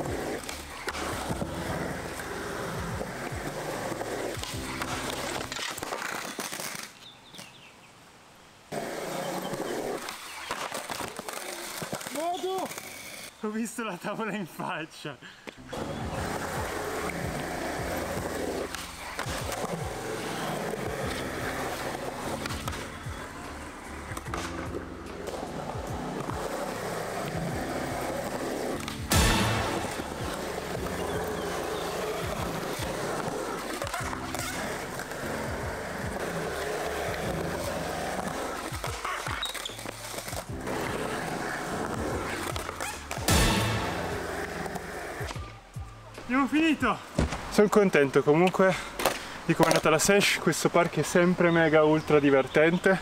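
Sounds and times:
music: 0:00.0 - 0:06.1, 0:15.6 - 0:47.3
skateboard wheels rolling on concrete: 0:00.0 - 0:53.0
skateboard clacks: 0:15.8 - 0:45.6, 0:48.4 - 0:50.0.

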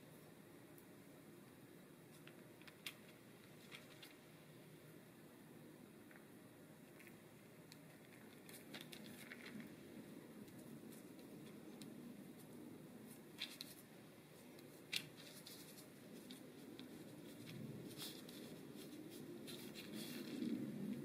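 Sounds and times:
paper rustling and clicking: 0:02.1 - 0:04.2, 0:07.0 - 0:09.8, 0:13.3 - 0:13.9, 0:14.5 - 0:21.0.

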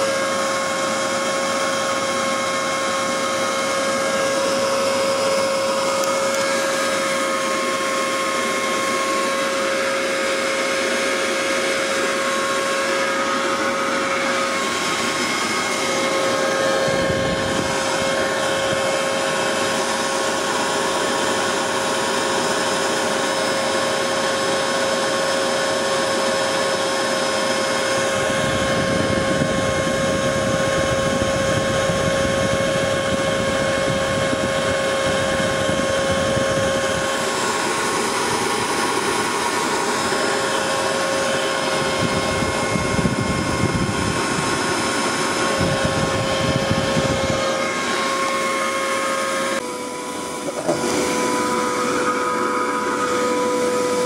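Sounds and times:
leaf blower whining: 0:00.0 - 0:54.0.

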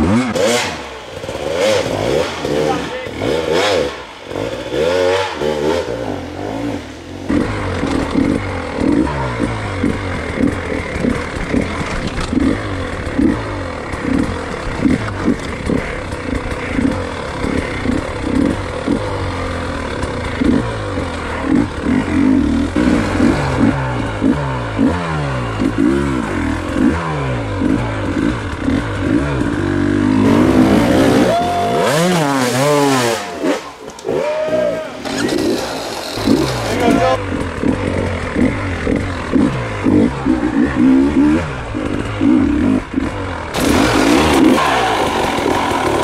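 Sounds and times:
clatter and scraping: 0:00.0 - 0:24.4, 0:35.0 - 0:46.0
dirt bike engine revving: 0:00.0 - 0:46.0.

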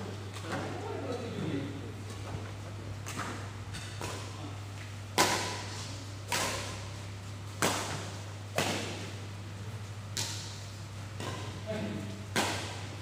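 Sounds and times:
steady low hum: 0:00.0 - 0:13.0
racket hitting shuttlecock: 0:03.0 - 0:04.4, 0:05.1 - 0:09.2, 0:10.1 - 0:11.6, 0:12.3 - 0:13.0.

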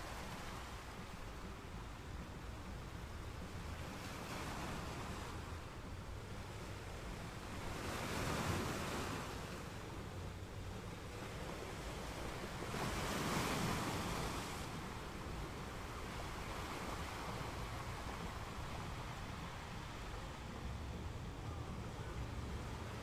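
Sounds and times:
sea waves washing in: 0:00.0 - 0:23.0
wind rumble on microphone: 0:00.0 - 0:23.0.

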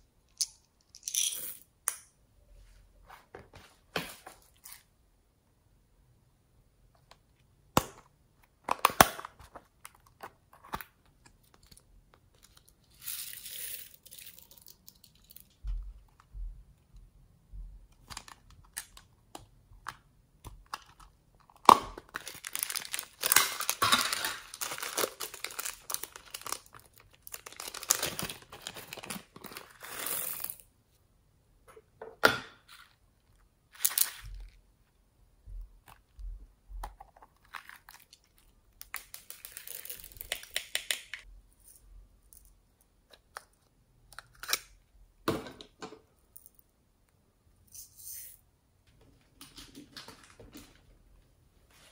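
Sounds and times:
crinkling and rustling: 0:17.9 - 0:30.6, 0:48.8 - 0:51.9.

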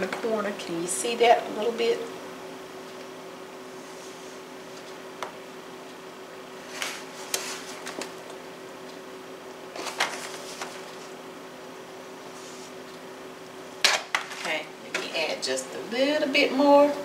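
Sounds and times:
steady low hum: 0:00.0 - 0:17.0
aluminum foil pan crinkling: 0:09.8 - 0:10.9.

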